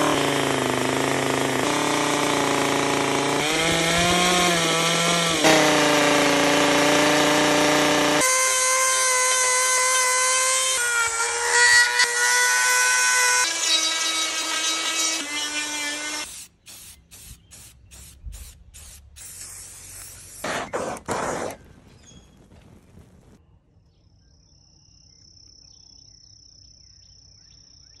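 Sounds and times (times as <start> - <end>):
rotary tool whining: 0.0 - 18.2
spray-paint can hissing: 16.3 - 21.0.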